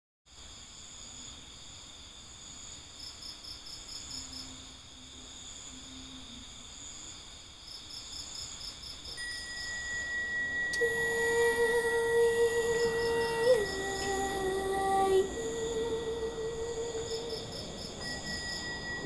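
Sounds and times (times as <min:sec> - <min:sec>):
insects trilling: 0:00.3 - 0:19.0
quick runs of insect chirps: 0:00.3 - 0:19.0
steady high tone: 0:09.2 - 0:19.0.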